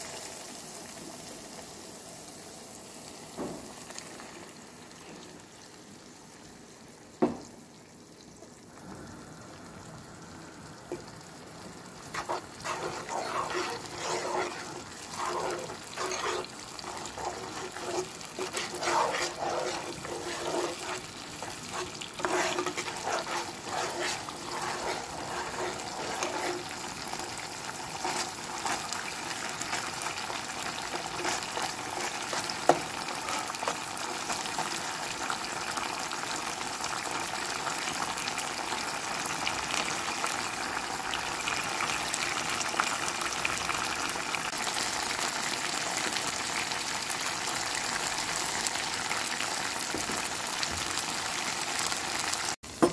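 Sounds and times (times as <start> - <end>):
paste sizzling in pan: 0.0 - 7.4, 9.6 - 52.9
metal spoon scraping pan: 12.1 - 34.4.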